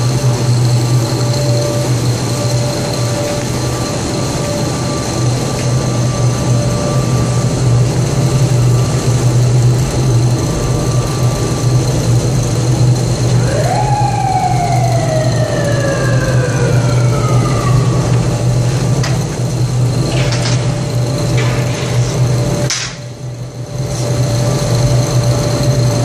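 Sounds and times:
furnace humming: 0:00.0 - 0:26.0
high tones from burners and fans: 0:00.0 - 0:26.0
mechanical whine: 0:00.0 - 0:26.0.

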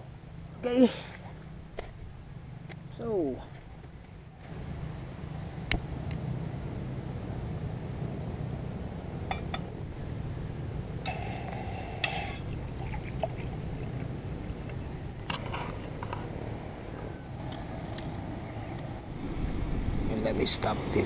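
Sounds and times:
gas stove burner humming: 0:07.0 - 0:21.0
water pouring into metal mug: 0:11.1 - 0:14.1.

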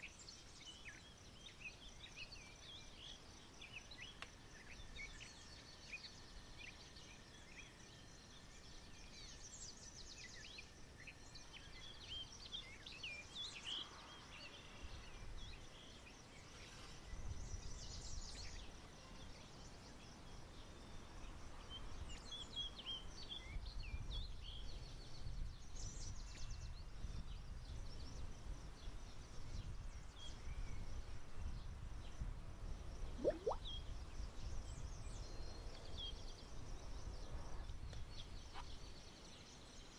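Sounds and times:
short rising whistle: 0:33.2 - 0:33.6
small birds chirping: 0:33.2 - 0:33.7.

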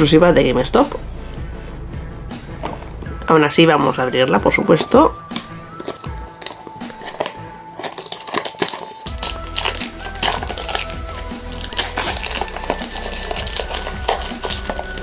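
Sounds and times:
background music held notes: 0:00.0 - 0:15.0
plastic packaging crinkling: 0:04.7 - 0:15.0.

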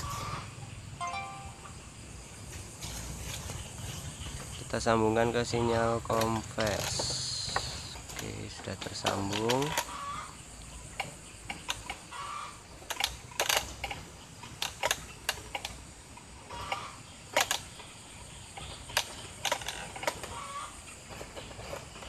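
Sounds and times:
sharp clicks and knocks: 0:06.1 - 0:09.9.

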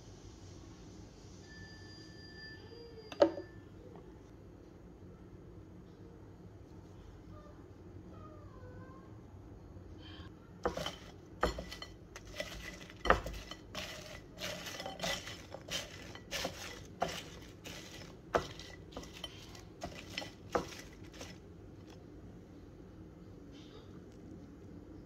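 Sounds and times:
fries clinking on ceramic plate: 0:10.6 - 0:22.0.

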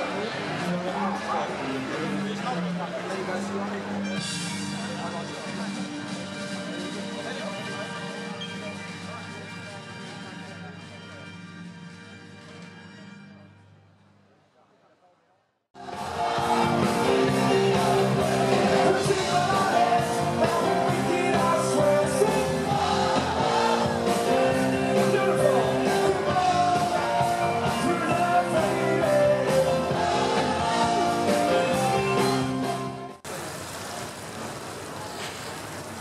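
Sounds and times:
rock music with singing: 0:15.8 - 0:33.2.

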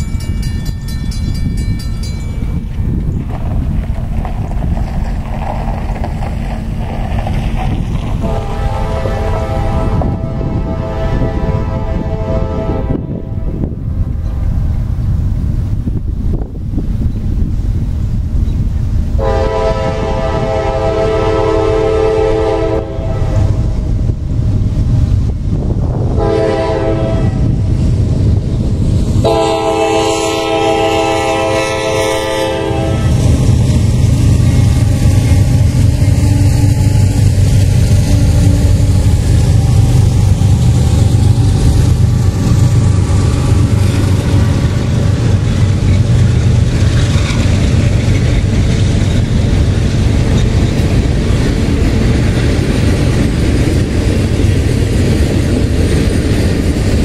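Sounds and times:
deep rumble of locomotives: 0:00.0 - 0:57.0
freight cars rolling on rails: 0:00.0 - 0:57.0
locomotive air horn: 0:08.2 - 0:13.6, 0:19.2 - 0:23.8, 0:26.1 - 0:27.6, 0:29.2 - 0:33.5, 0:34.2 - 0:39.1.

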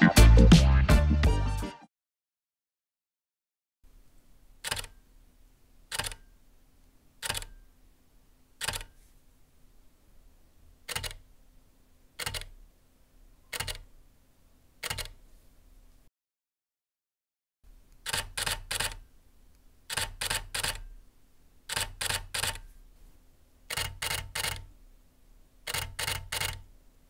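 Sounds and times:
camera shutter clicks: 0:18.0 - 0:19.0, 0:19.9 - 0:20.8, 0:21.7 - 0:22.6.

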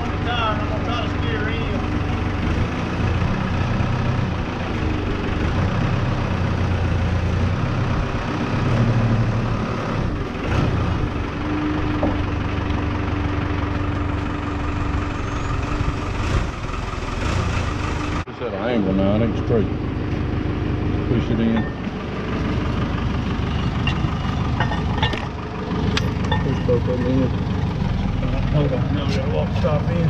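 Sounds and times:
diesel engine running at low revs: 0:00.0 - 0:30.0
steady higher whine: 0:18.3 - 0:27.8.

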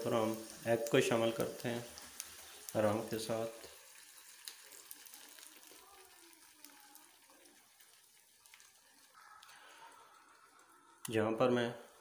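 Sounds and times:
egg sizzling in frying pan: 0:00.0 - 0:12.0.

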